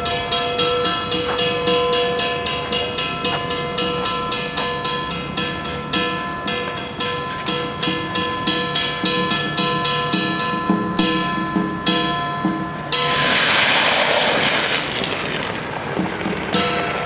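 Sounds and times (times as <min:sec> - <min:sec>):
loud hissing cymbal crash: 0:13.0 - 0:15.7.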